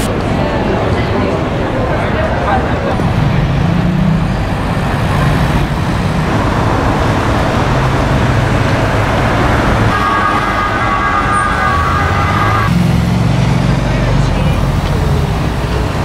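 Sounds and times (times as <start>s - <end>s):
cars passing: 0.0s - 16.0s.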